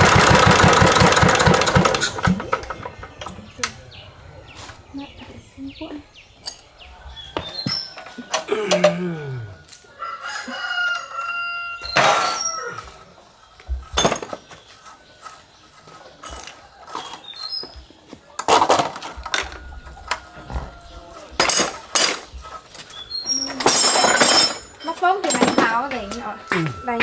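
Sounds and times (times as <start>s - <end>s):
rooster crowing: 7.0s - 13.1s, 19.4s - 21.4s.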